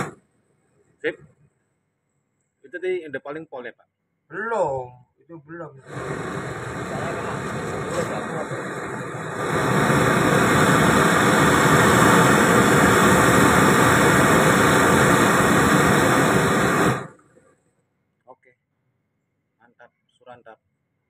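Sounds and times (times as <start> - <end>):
gas burner flame rushing: 5.8 - 17.4.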